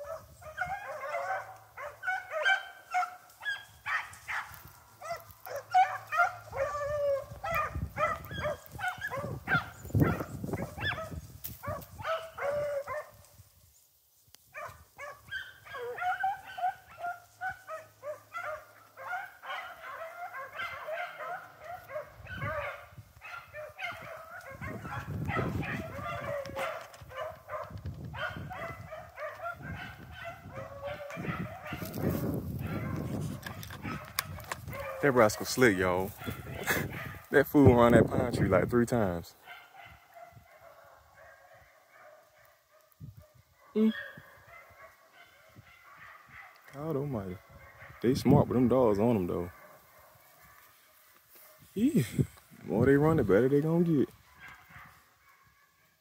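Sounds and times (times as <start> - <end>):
dogs baying and yelping: 0.0 - 13.2, 14.6 - 37.3, 39.4 - 52.5, 53.3 - 56.0.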